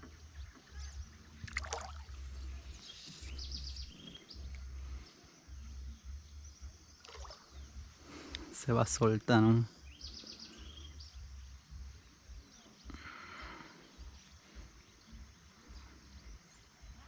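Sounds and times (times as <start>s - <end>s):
faint bird chirps: 0.0s - 17.0s
low rumble: 2.1s - 8.4s, 9.7s - 13.1s.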